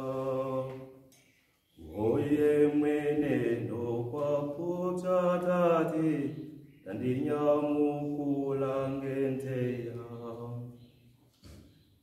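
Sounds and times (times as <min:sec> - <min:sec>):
man singing unaccompanied: 0:01.8 - 0:10.7.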